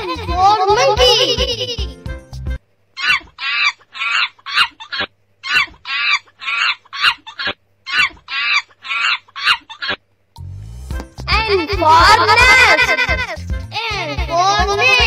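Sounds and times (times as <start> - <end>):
monkey chattering calls: 3.0 - 10.0.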